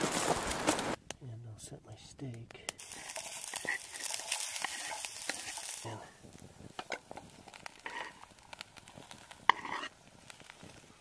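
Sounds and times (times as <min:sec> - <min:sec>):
crackles: 0:00.0 - 0:11.0
onions sizzling in hot oil: 0:02.8 - 0:11.0.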